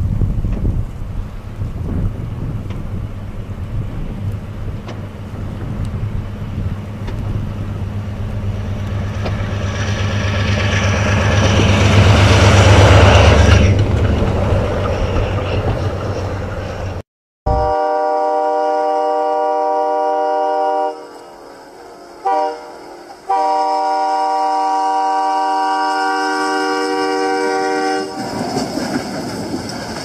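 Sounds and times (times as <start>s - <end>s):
diesel locomotive engine drone: 0.0s - 30.0s.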